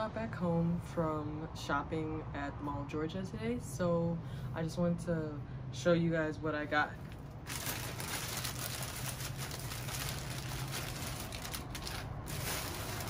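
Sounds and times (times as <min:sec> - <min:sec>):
shopping bags rustling: 0:07.0 - 0:13.0.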